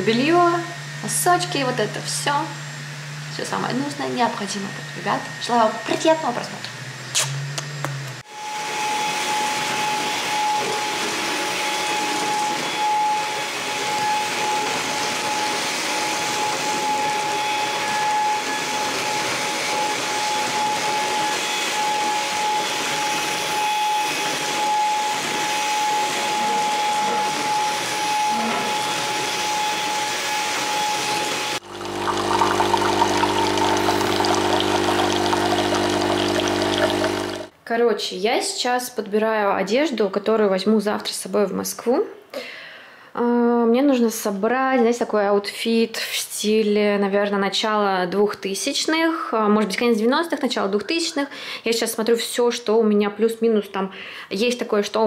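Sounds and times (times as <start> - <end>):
stick vacuum cleaner whining: 7.4 - 37.5
espresso machine pump humming: 31.4 - 37.5.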